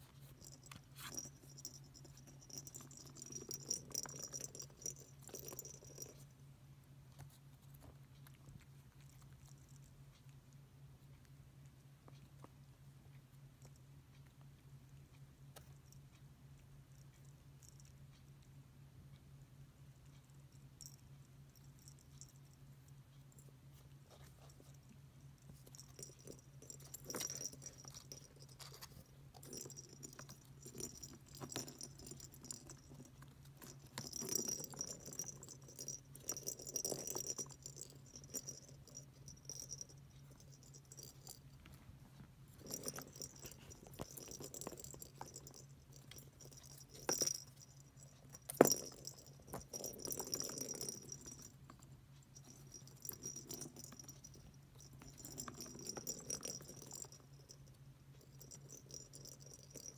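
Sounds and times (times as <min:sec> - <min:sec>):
paws tapping on toy: 0:00.1 - 0:06.2, 0:24.1 - 0:59.9.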